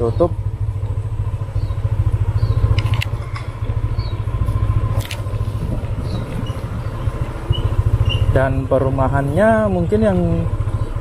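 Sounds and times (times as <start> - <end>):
motorcycle engine running: 0.0 - 11.0
brief clicks: 2.7 - 3.5.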